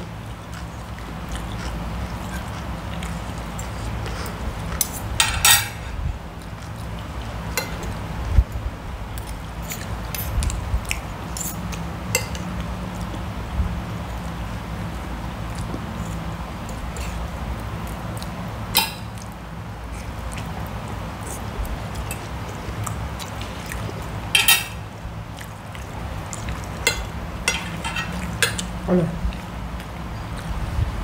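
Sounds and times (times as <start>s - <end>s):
cutlery clicking on plates: 4.8s - 5.9s, 7.6s - 8.0s, 11.4s - 12.5s, 18.8s - 19.2s, 24.4s - 24.8s, 26.8s - 28.7s.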